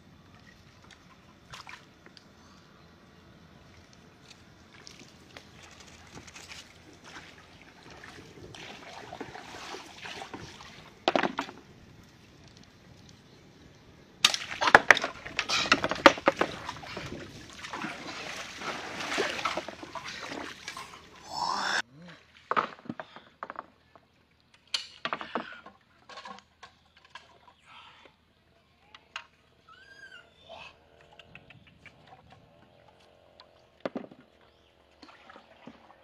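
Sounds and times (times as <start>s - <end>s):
water splashing around boat: 3.6s - 13.1s, 14.2s - 21.2s, 34.9s - 36.0s.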